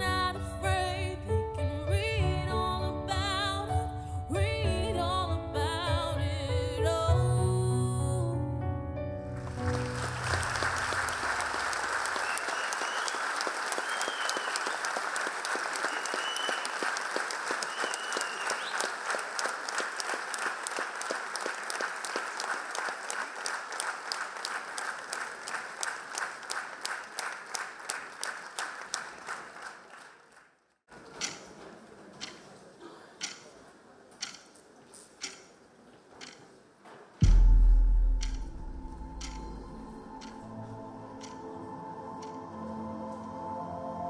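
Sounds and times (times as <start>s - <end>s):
audience applauding: 9.4s - 30.6s
rhythmic clapping in unison: 9.4s - 30.6s, 37.2s - 40.4s.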